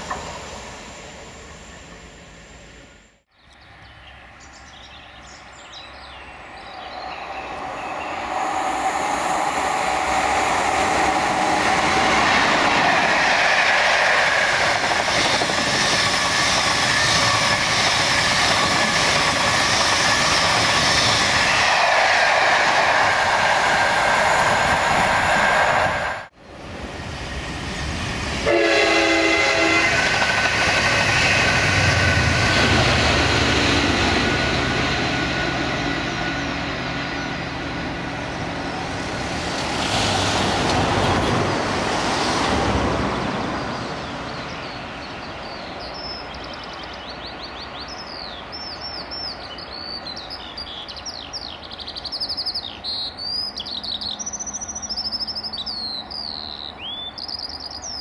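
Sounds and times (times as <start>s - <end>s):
train engine and wheel noise: 0.0s - 58.0s
birds chirping: 1.3s - 12.9s, 43.2s - 58.0s
train horn blast: 28.4s - 30.2s.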